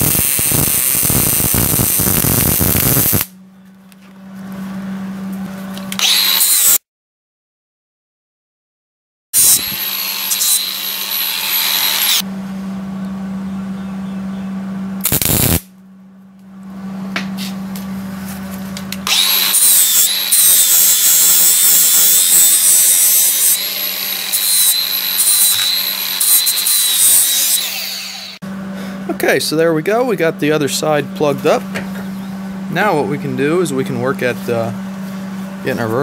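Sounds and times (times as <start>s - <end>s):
welding arc crackling and hissing: 0.0s - 3.3s, 15.0s - 15.6s
steady low hum: 0.1s - 6.0s, 12.2s - 19.1s, 28.4s - 36.0s.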